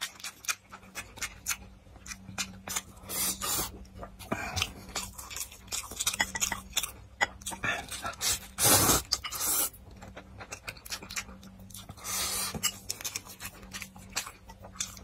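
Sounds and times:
wet chewing clicks and smacks: 0:00.0 - 0:03.0, 0:03.8 - 0:08.4, 0:09.8 - 0:15.0
slurping noodles: 0:08.2 - 0:09.8.

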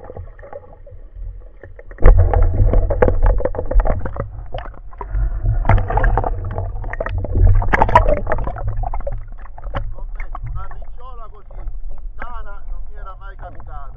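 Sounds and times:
muffled underwater rumble: 0:00.0 - 0:13.9
underwater clicks and crackles: 0:00.0 - 0:13.9.

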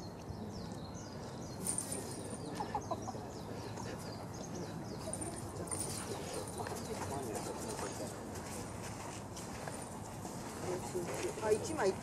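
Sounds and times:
birds chirping: 0:00.0 - 0:08.3.

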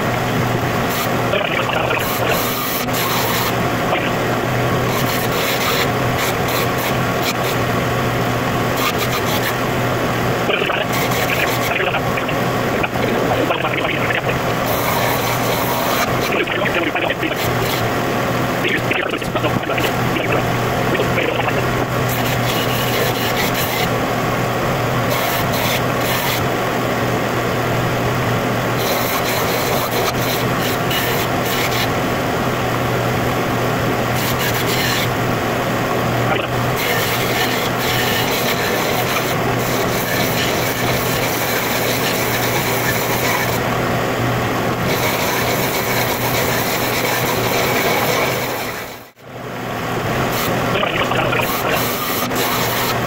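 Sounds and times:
steady low hum: 0:00.0 - 0:53.0
tool rasping wood: 0:04.8 - 0:07.6, 0:14.6 - 0:16.3, 0:22.1 - 0:23.9, 0:34.2 - 0:35.2.

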